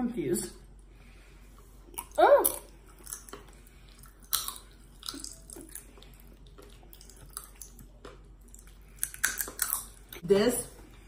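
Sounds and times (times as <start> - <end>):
chewing: 1.5 - 10.2
popping candy crackling: 8.9 - 10.0.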